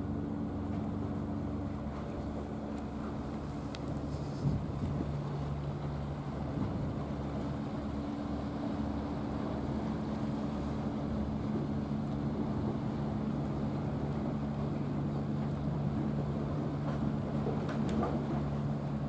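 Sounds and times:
low engine drone: 0:00.0 - 0:19.0
wind and sea noise: 0:00.0 - 0:19.0.

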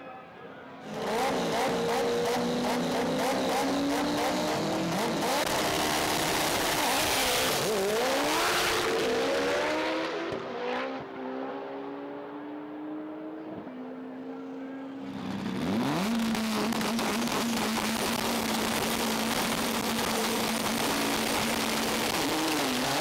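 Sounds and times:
drag car engines crackling: 0:00.8 - 0:09.5, 0:14.9 - 0:23.0
cars accelerating hard: 0:00.8 - 0:23.0.

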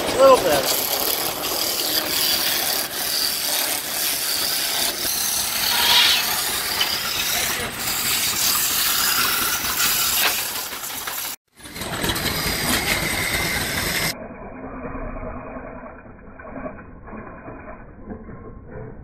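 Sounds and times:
wood lathe turning wood: 0:00.0 - 0:14.2.

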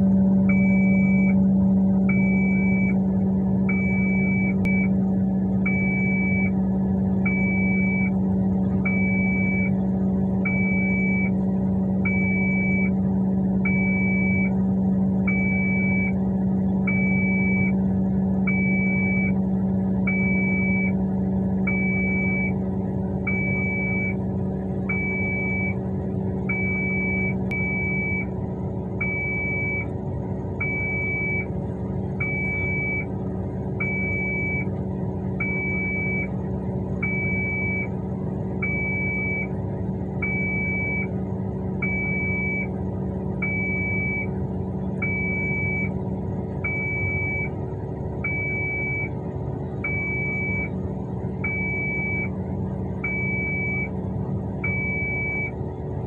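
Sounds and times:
diesel engine hum: 0:00.0 - 0:56.0
high warning beeps: 0:53.0 - 0:53.9, 0:54.6 - 0:55.5.

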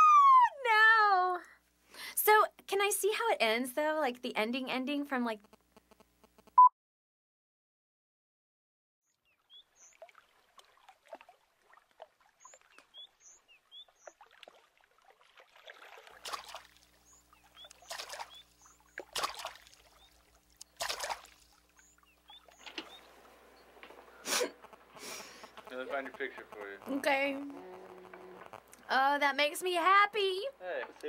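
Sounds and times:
bird chirps: 0:09.1 - 0:10.0, 0:12.4 - 0:14.2, 0:17.0 - 0:19.2, 0:21.7 - 0:24.8
water lapping: 0:09.4 - 0:31.0
low hum: 0:22.0 - 0:30.7
woman sniffing and crying: 0:24.2 - 0:25.5.

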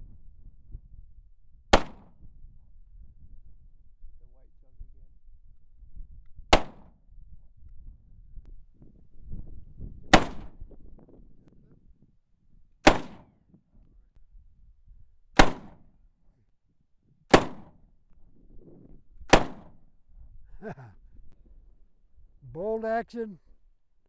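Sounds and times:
rifle shots with echo: 0:01.7 - 0:02.1, 0:06.5 - 0:06.9, 0:10.1 - 0:10.5, 0:12.8 - 0:13.3, 0:15.4 - 0:15.8, 0:17.3 - 0:17.8, 0:19.3 - 0:19.8.

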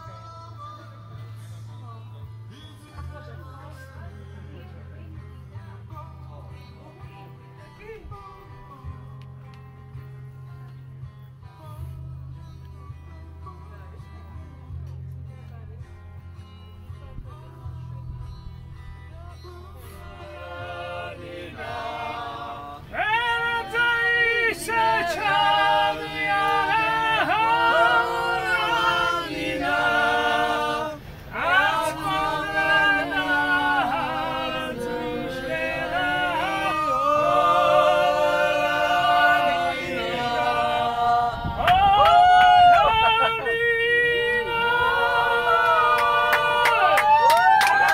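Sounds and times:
group singing unaccompanied: 0:19.8 - 0:47.1.

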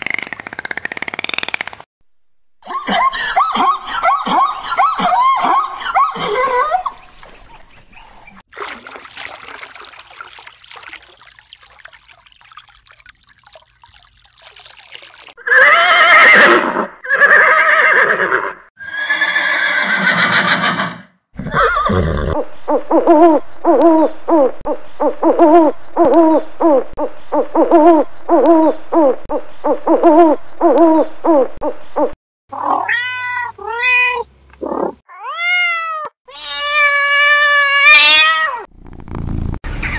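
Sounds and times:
cat meowing: 0:32.5 - 0:34.3, 0:35.1 - 0:38.7.

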